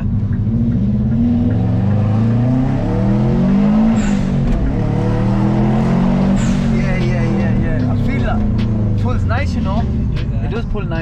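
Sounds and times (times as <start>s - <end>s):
car engine accelerating: 0.0s - 11.0s.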